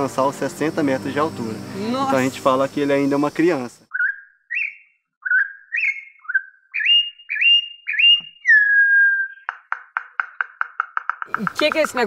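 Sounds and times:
bird singing: 3.8s - 9.7s.

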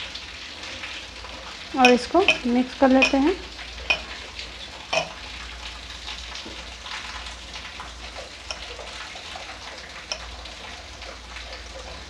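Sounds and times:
faint clicks against metal bowl: 1.8s - 3.2s.

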